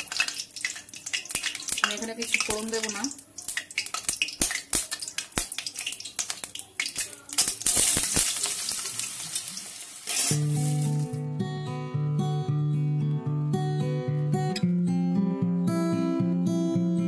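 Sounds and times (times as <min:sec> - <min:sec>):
loud frying sizzle: 0:00.0 - 0:11.1
acoustic guitar music: 0:10.1 - 0:17.0.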